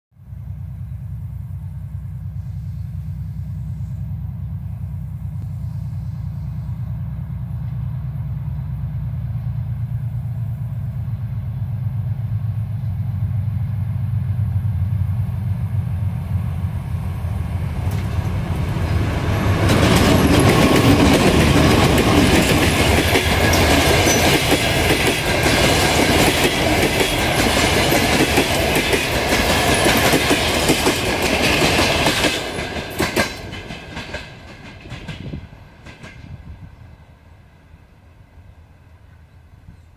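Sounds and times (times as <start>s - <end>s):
diesel locomotive engine drone: 0.2s - 39.9s
train passing with rush and clatter: 0.2s - 39.9s
train wheels clattering over rails: 17.1s - 36.8s.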